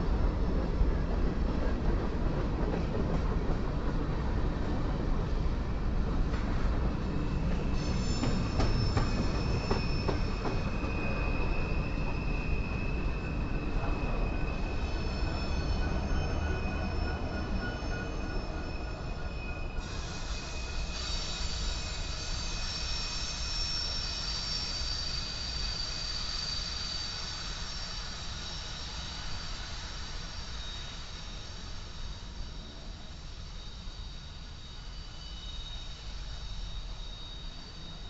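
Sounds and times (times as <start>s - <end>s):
low train rumble: 0.0s - 38.0s
train wheels squealing: 0.0s - 38.0s.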